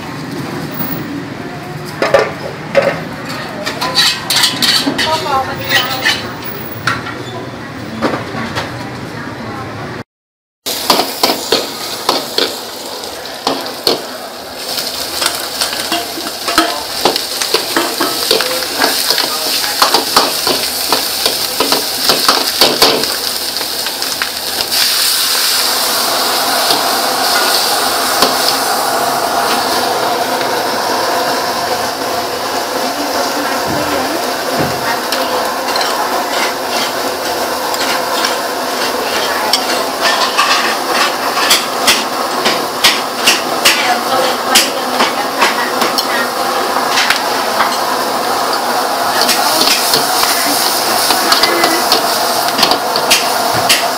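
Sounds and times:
metal ladle scraping a wok: 3.2 - 6.3, 35.1 - 42.1
garlic sizzling in oil: 10.7 - 53.9.

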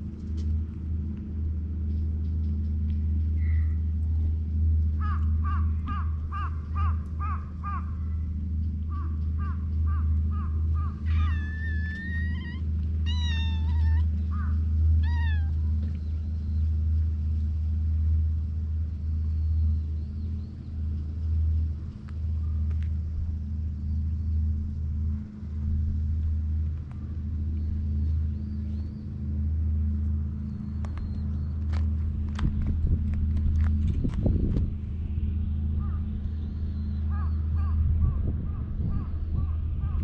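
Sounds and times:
steady low rumble: 0.0 - 40.0
cat meowing: 11.2 - 14.1, 15.0 - 15.6.

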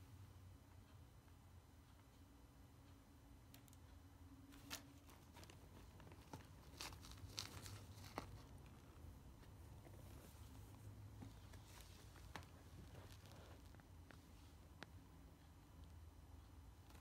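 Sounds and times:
low steady hum: 0.0 - 17.0
nylon bag rustling and crinkling: 6.2 - 8.5.

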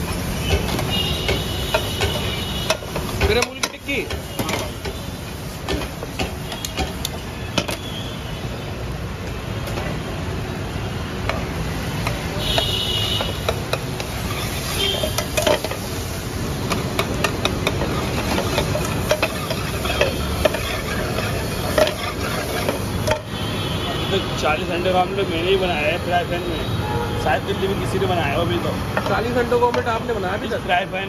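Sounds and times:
butter sizzling in frying pan: 0.0 - 7.8, 10.6 - 23.6
metal spatula clinking on pan: 16.7 - 23.2.

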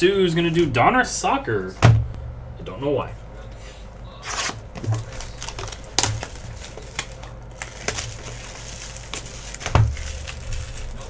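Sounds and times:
dull thump: 1.8 - 2.2
shrink wrap tearing and crinkling: 4.2 - 11.0.

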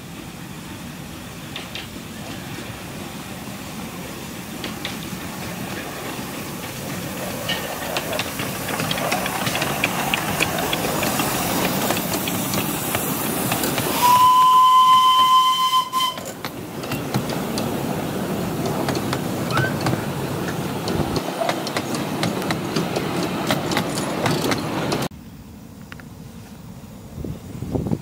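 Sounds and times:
train wheels clicking on rails: 0.4 - 25.1
steam locomotive whistle: 13.9 - 16.4.

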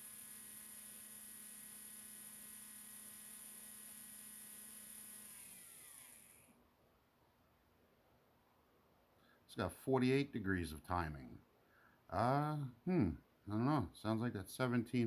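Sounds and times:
electric motor whine: 0.0 - 6.6.

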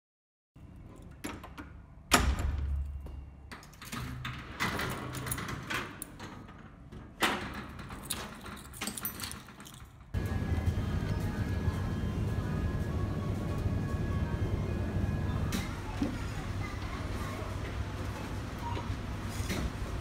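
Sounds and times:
key turning in lock: 3.6 - 6.4, 7.4 - 10.1
keys jangling: 7.7 - 10.1.

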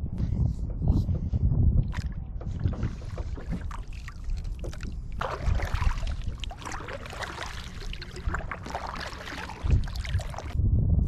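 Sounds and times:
low wind rumble: 0.0 - 11.0
paddle strokes splashing water: 1.9 - 10.6
water running off paddle: 2.0 - 10.6.

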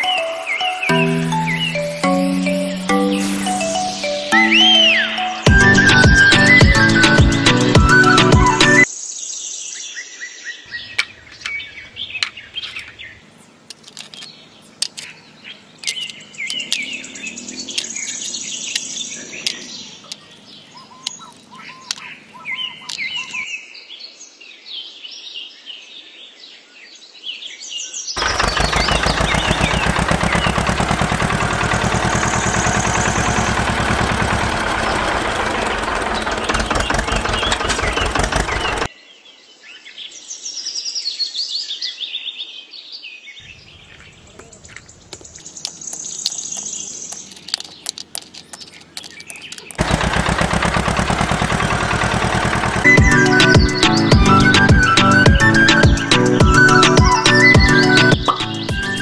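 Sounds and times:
birds chirping: 0.0 - 8.9, 10.6 - 23.5, 28.2 - 38.9, 43.4 - 59.0
tractor engine chugging: 5.5 - 8.8, 10.8 - 23.4, 28.2 - 38.9, 43.6 - 59.0
clay bricks clicking: 13.6 - 15.2, 15.8 - 17.1, 22.8 - 23.4, 44.3 - 52.8.

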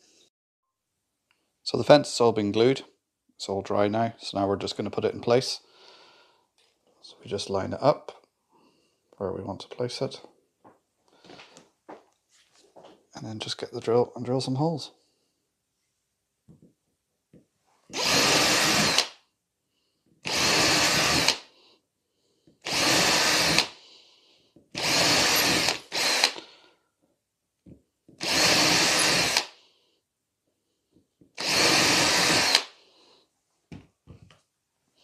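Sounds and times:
cordless drill drilling: 17.9 - 19.2, 20.2 - 21.5, 22.6 - 23.8, 24.7 - 26.5, 28.2 - 29.6, 31.4 - 32.8.

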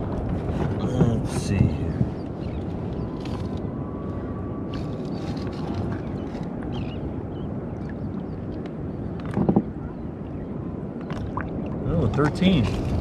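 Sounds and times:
ocean water washing around kayak: 0.0 - 3.4, 7.7 - 13.0.

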